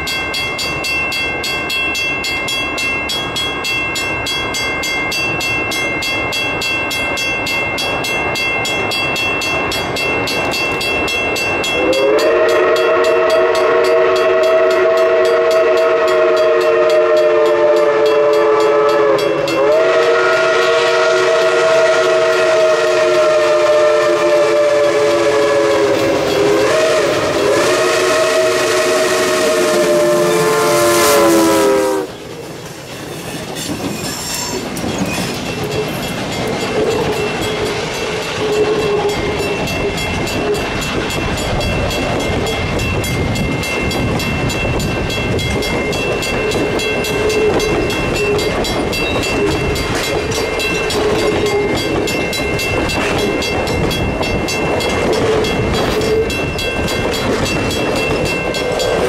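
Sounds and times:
steam locomotive whistle chord: 11.6s - 32.4s, 36.7s - 43.1s, 45.6s - 57.2s
wheel-on-rail clatter: 32.4s - 39.3s.

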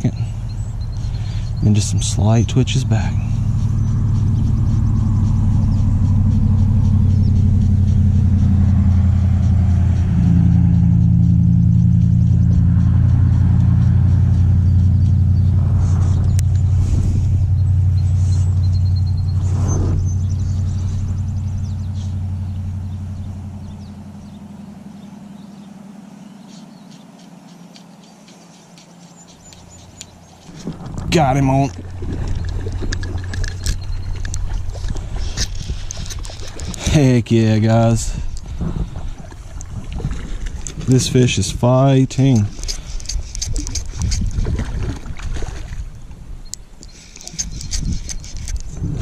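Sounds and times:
low engine drone: 0.0s - 49.0s
faint high ticks: 3.5s - 15.4s, 26.4s - 30.8s, 31.7s - 36.9s.

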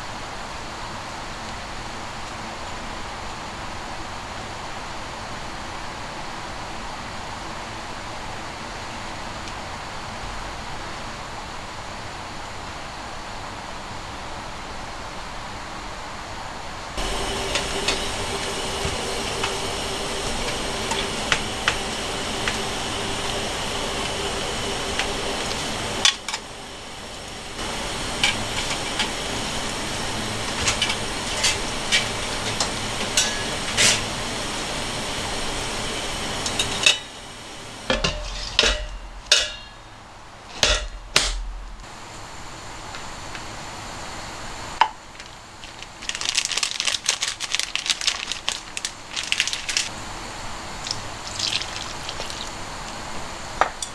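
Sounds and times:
pot simmering hiss: 0.0s - 53.9s
kitchen utensils clattering: 30.5s - 34.2s, 36.4s - 37.2s, 37.9s - 39.9s, 40.5s - 41.4s.

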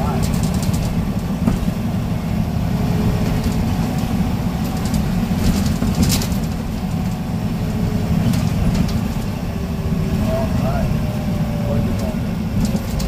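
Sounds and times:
bus diesel engine rumble: 0.0s - 13.0s.

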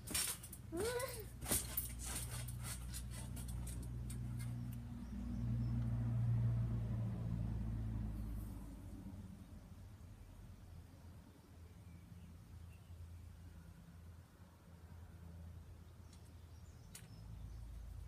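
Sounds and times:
vehicle engine hum driving past: 3.4s - 10.5s.

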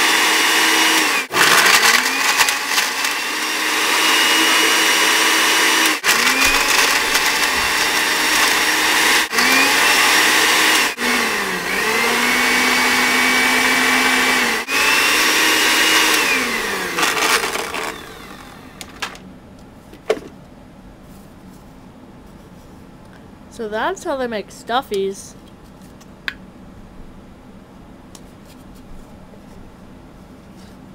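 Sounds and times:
blender motor whining: 0.0s - 19.2s.

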